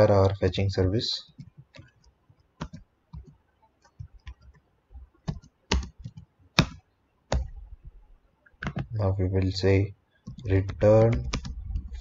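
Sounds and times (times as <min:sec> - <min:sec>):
typing on computer keyboard: 0:01.3 - 0:04.6, 0:05.2 - 0:07.5, 0:10.2 - 0:12.0.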